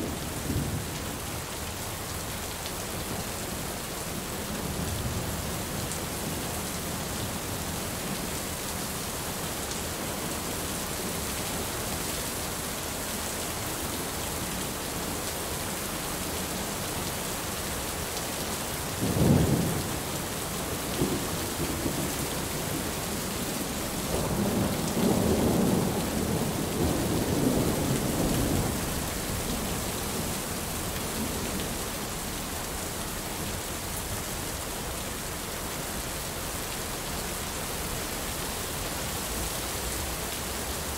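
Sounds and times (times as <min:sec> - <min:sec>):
heavy rain falling: 0:00.0 - 0:40.9
rumbling thunder: 0:24.1 - 0:29.6.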